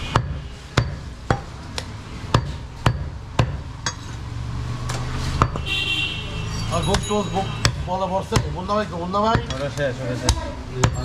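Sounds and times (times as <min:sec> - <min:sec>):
chopping on wooden block: 0:06.9 - 0:08.7.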